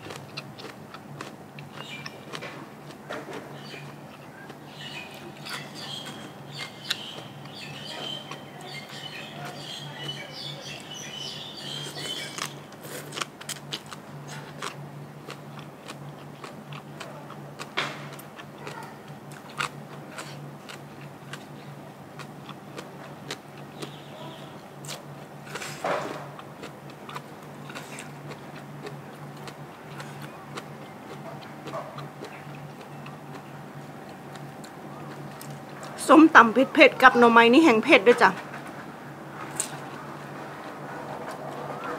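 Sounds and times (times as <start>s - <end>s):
chewing and crunching: 0.0s - 36.0s, 38.1s - 41.9s
steady low hum: 0.0s - 41.9s
birds chirping: 1.6s - 2.4s, 3.1s - 12.7s, 23.5s - 25.4s, 26.2s - 41.9s.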